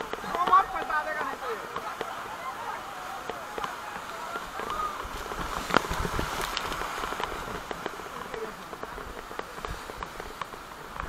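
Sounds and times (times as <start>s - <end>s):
whitewater rushing: 0.0s - 11.0s
sharp splashes and knocks: 3.2s - 11.0s.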